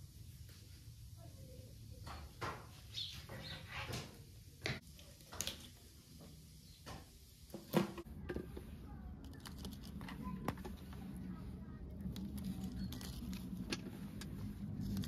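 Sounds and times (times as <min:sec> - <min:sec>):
low steady hum: 0:04.3 - 0:15.0.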